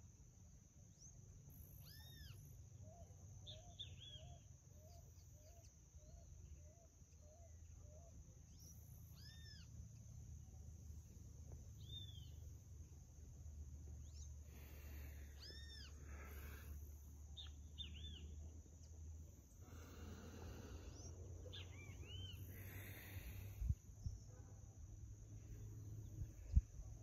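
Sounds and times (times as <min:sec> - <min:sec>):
rise-and-fall animal calls: 0:14.5 - 0:18.1.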